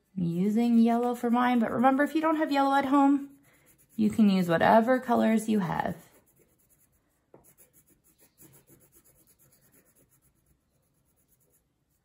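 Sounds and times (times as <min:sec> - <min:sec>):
crayon scratching on paper: 0:00.0 - 0:12.0.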